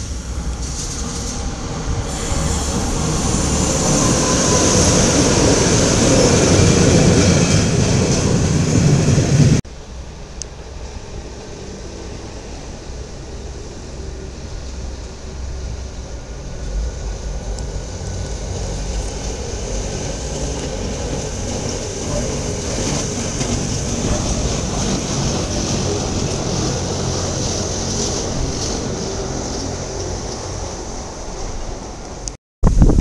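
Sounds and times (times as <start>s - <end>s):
train wheels on rails: 0.0s - 9.7s, 10.3s - 32.3s.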